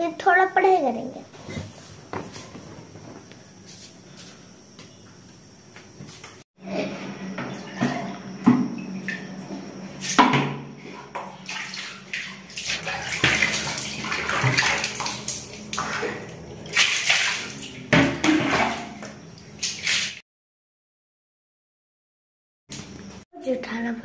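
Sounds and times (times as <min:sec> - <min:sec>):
water splashing: 0:11.2 - 0:20.2.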